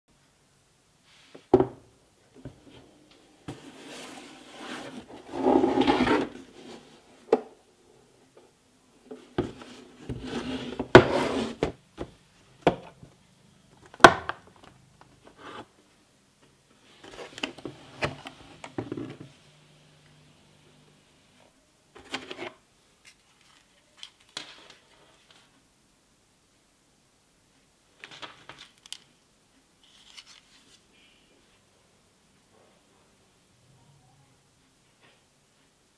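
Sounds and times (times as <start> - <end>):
plastic case scraping on wood: 3.5 - 6.4, 9.5 - 11.7.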